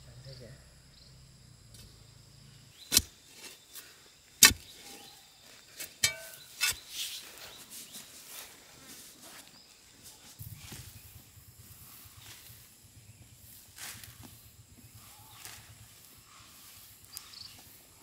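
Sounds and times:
digging bar striking stony soil: 2.8 - 5.1, 5.8 - 7.2
soil crumbling and scraping: 2.8 - 7.4.

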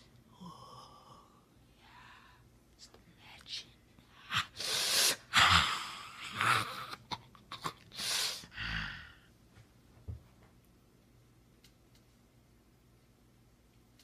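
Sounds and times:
person hissing and gasping: 4.2 - 6.9, 7.6 - 9.2
person growling: 5.3 - 7.8.

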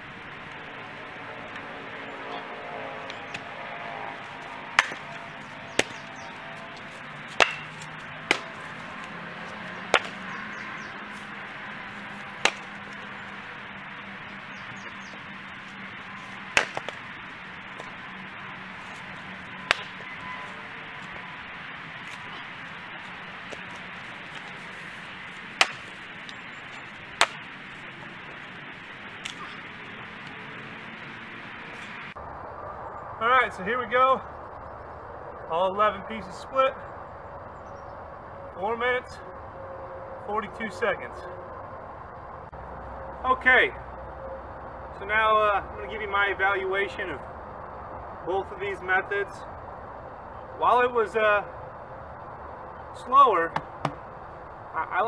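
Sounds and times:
axe splitting firewood: 4.8 - 5.1, 5.7 - 6.0, 7.3 - 10.2, 16.6 - 17.0, 25.6 - 26.0, 53.5 - 54.1
steady background hiss: 40.4 - 55.0
wood knock: 53.6 - 54.0.

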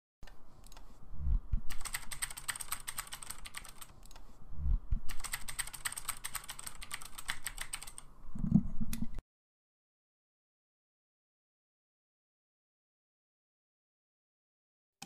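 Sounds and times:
low thuds: 1.1 - 1.7, 4.6 - 5.1
rapid keyboard key clicks: 1.5 - 4.3, 4.9 - 8.1.

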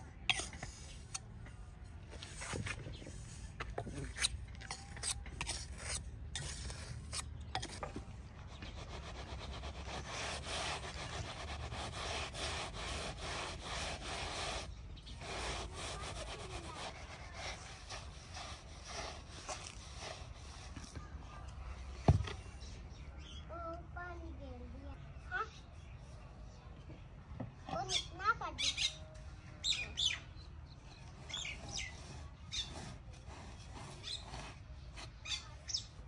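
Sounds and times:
gritty rasping against cement: 0.3 - 1.2, 3.6 - 20.8, 31.3 - 35.6
trowel scraping wet cement: 0.3 - 1.2, 3.6 - 20.8.

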